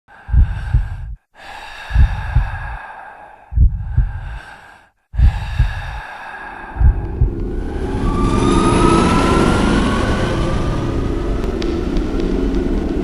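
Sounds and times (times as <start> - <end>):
heavy strained breathing: 0.1 - 7.4.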